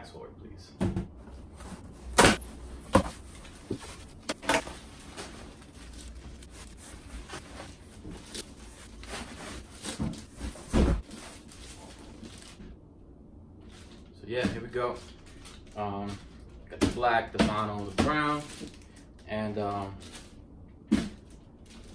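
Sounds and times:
cardboard flaps and packing rustling: 1.2 - 12.8.

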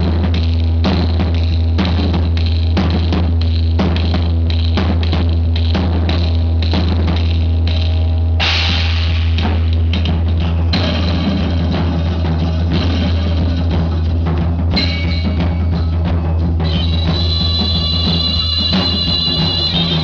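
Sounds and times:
improvised drumming: 0.0 - 20.0
sustained high instrumental tones: 14.7 - 20.0.

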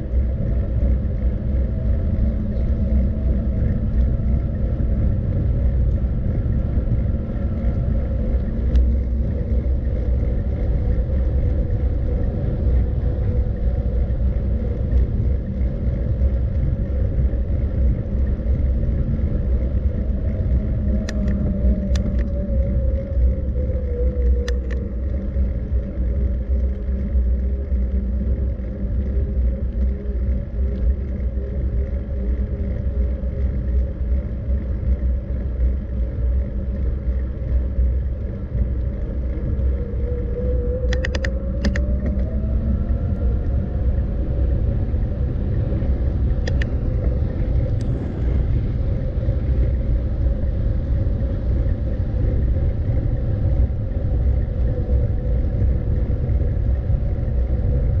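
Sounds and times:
faint hum sliding down: 0.0 - 58.0
moving vehicle rumble: 0.0 - 58.0
sharp clicks: 40.9 - 42.2.

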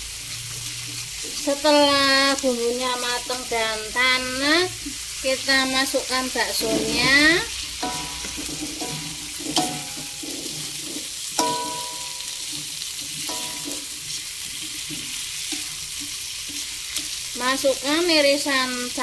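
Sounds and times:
meatballs sizzling in oil: 0.0 - 19.0
spatula knocking metal wok: 6.4 - 17.7.

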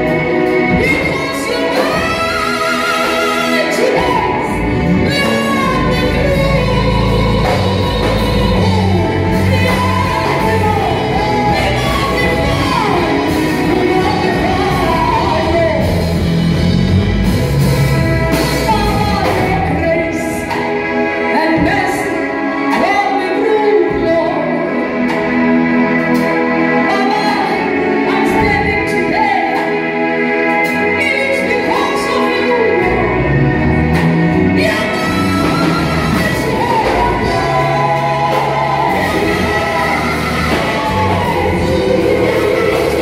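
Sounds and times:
woman singing gospel song: 0.0 - 16.3, 18.2 - 43.0
keyboard and band backing: 0.0 - 43.0.

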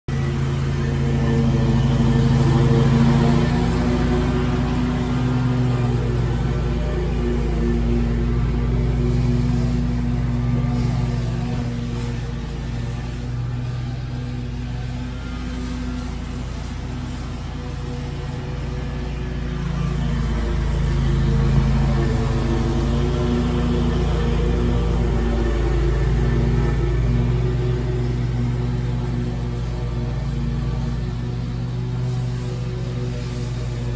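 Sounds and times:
mower engine running: 0.0 - 33.9
mower deck cutting grass: 0.1 - 33.9.

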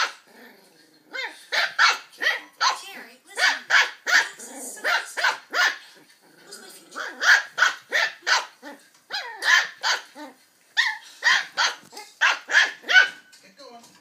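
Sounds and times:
puppy yapping: 0.0 - 0.2, 1.2 - 2.8, 3.4 - 5.8, 7.0 - 13.3.

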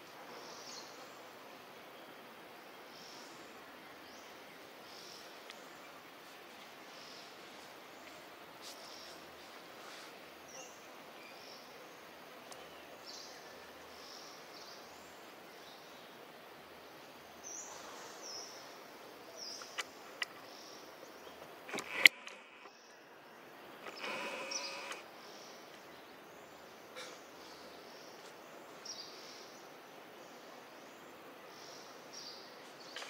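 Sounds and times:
steady low hiss: 0.0 - 33.0
sharp clicks: 21.7 - 22.7, 23.8 - 25.0.

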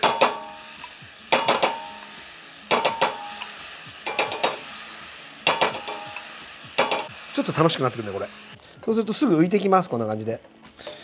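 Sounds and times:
metal spoon tapping pan rim: 0.0 - 2.1, 2.7 - 4.6, 5.5 - 7.1
oil sizzling: 0.0 - 11.0.

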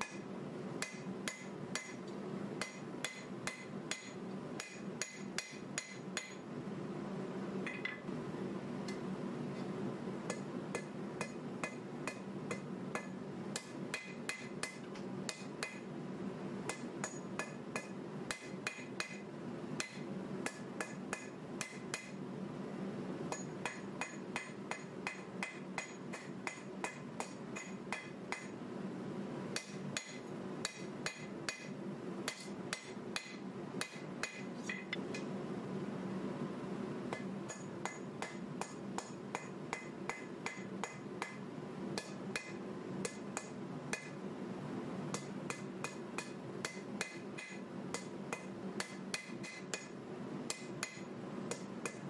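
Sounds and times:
hammer striking metal on anvil: 0.0 - 0.2, 0.8 - 2.0, 2.6 - 6.4, 10.3 - 15.9, 16.7 - 19.2, 19.8 - 22.2, 23.3 - 28.6, 29.6 - 35.0, 37.1 - 41.4, 42.0 - 44.2, 45.2 - 52.0
steady low hum: 0.0 - 52.0.

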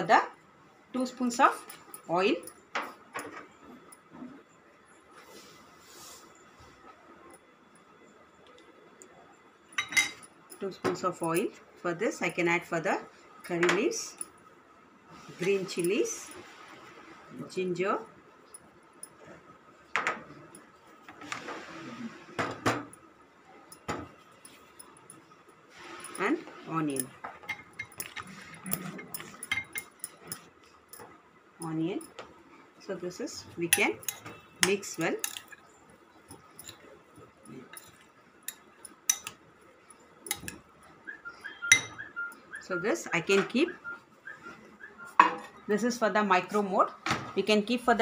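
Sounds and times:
kitchenware clinking and knocking: 9.7 - 11.4, 22.4 - 23.0, 26.9 - 31.2, 40.2 - 40.7, 41.7 - 42.1, 45.2 - 45.7
metal spoon stirring in glass bowl: 23.7 - 30.7, 33.6 - 40.7, 41.5 - 42.4.

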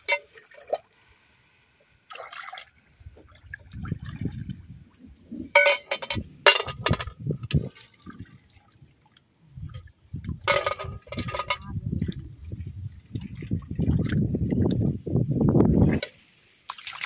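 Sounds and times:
water splashing and sloshing: 0.0 - 17.0
sharp splashes: 2.0 - 4.6, 16.6 - 17.0.

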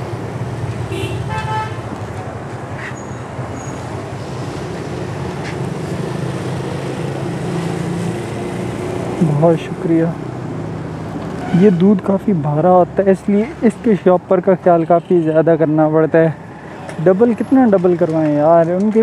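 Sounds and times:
road traffic engine hum: 0.0 - 19.0
vehicle horn toot: 0.9 - 1.9, 11.4 - 12.0.

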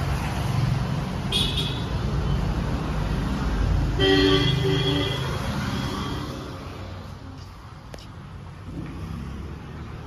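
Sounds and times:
street traffic rumbling: 0.0 - 10.0
vehicle horn honking: 4.0 - 6.2.

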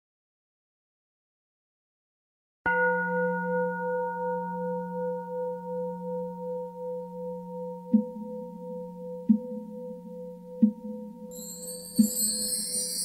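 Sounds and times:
singing bowl ringing: 2.7 - 13.0.

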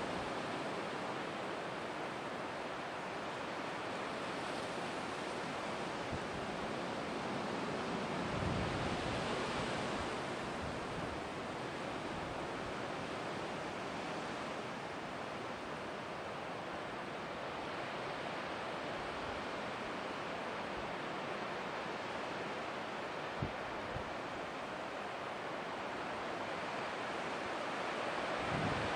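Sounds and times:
rushing wind: 27.9 - 28.9.

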